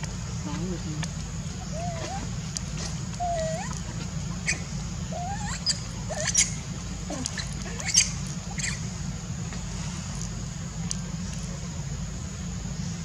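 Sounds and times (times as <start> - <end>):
steady low hum: 0.0 - 13.0
macaque squeaks and chirps: 1.6 - 8.9.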